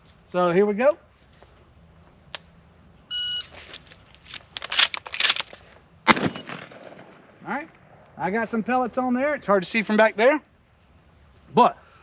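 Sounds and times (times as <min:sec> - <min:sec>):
shells clicking into shotgun: 0:04.2 - 0:06.6
shotgun shot: 0:06.1 - 0:07.4.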